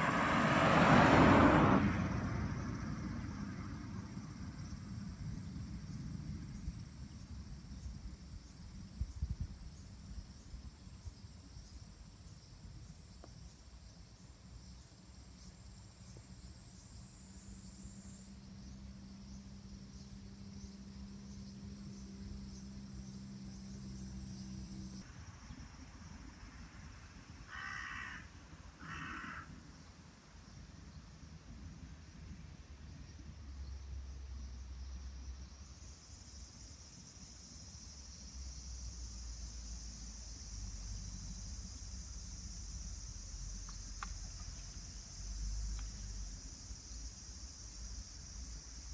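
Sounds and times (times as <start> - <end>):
crow cawing: 27.5 - 29.5.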